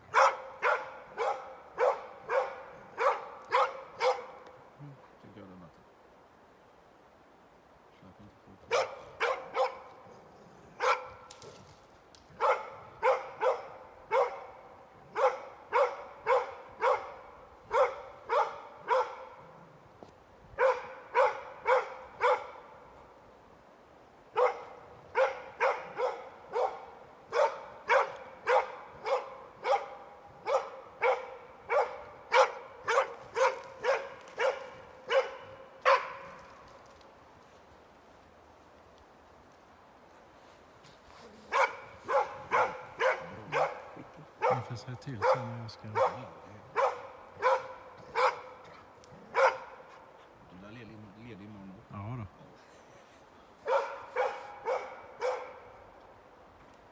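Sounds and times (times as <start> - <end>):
dog barking: 0.1 - 4.4, 8.7 - 9.9, 10.8 - 11.2, 12.4 - 19.5, 20.6 - 22.7, 24.3 - 36.4, 41.5 - 50.0, 53.6 - 55.8.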